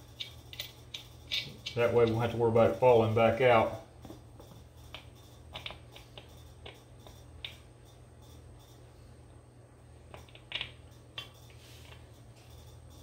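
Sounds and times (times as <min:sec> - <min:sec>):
metal nuts and washers clinking: 0:00.0 - 0:07.7.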